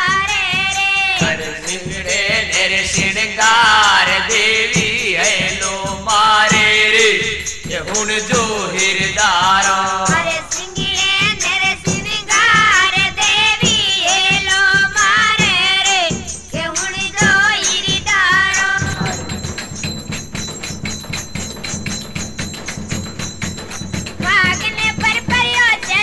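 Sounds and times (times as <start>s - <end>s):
person singing folk song: 0.0s - 19.4s
steady percussion beat: 0.0s - 26.0s.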